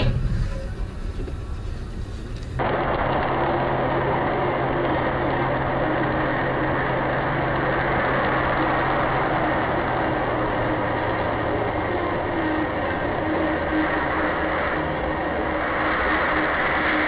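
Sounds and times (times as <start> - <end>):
engine hum: 0.0 - 17.0
road and cabin noise: 0.0 - 17.0.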